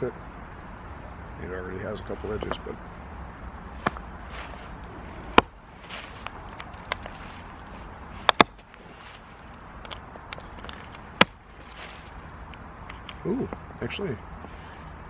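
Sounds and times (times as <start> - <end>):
tool striking stone clicks: 6.2 - 7.1, 8.2 - 8.8, 9.8 - 11.8.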